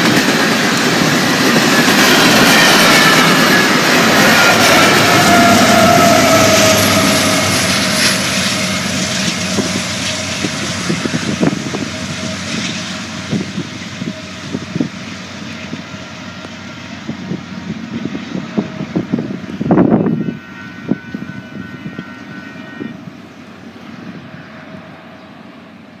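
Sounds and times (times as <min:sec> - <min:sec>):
train wheels clicking on rails: 0:00.0 - 0:20.0
diesel locomotive passing: 0:00.0 - 0:26.0.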